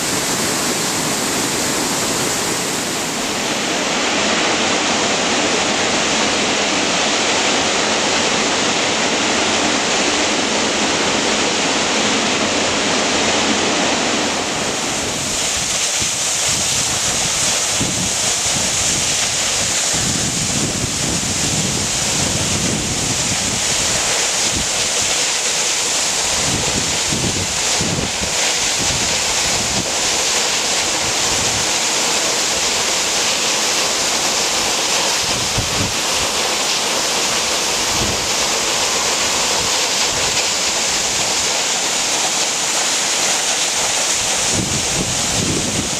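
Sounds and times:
waterfall rushing: 0.0s - 45.9s
wind buffeting microphone: 15.0s - 24.8s, 26.3s - 30.1s, 35.2s - 36.4s, 37.9s - 38.4s, 44.2s - 45.9s.

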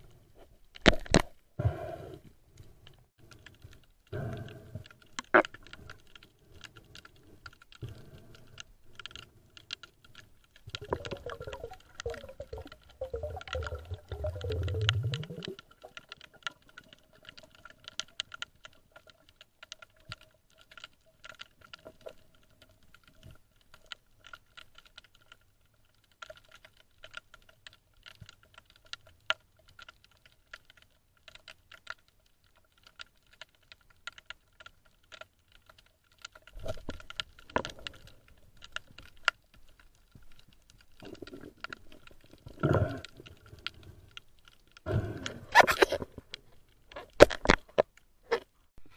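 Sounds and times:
underwater crackle of clicks: 0.0s - 1.4s, 2.5s - 48.6s.

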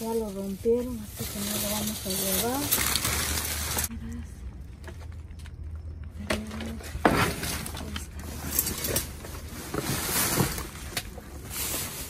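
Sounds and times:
plastic bags crinkling: 0.0s - 3.9s.

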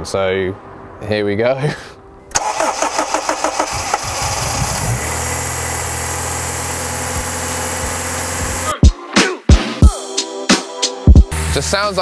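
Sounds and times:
car engine starting and idling: 2.3s - 8.7s.

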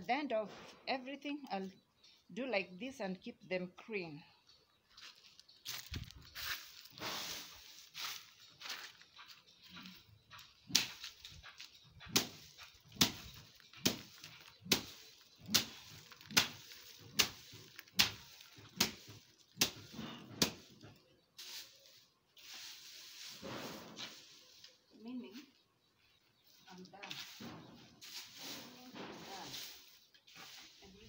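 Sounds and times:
rustling: 4.9s - 25.6s, 26.4s - 31.0s
stick beating bean plants: 5.1s - 25.2s, 26.7s - 31.0s.

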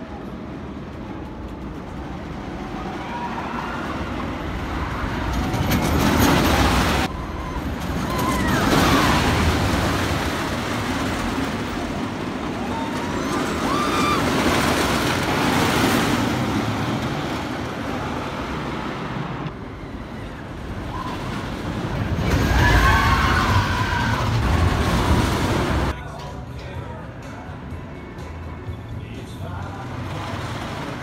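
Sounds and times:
roller coaster rumbling on wooden track: 0.0s - 26.0s, 29.1s - 31.0s
riders screaming: 2.7s - 5.4s, 7.1s - 9.8s, 12.5s - 15.0s, 22.2s - 24.8s.

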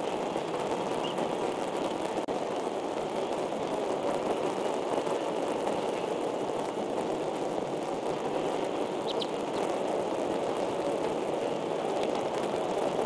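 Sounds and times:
steady rushing noise: 0.0s - 13.0s
faint high chirp: 9.0s - 9.4s.

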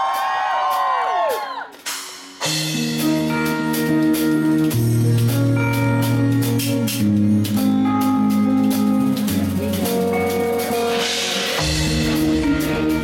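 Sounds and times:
live band playing pop: 0.0s - 13.0s
deep bass part: 11.6s - 13.0s.

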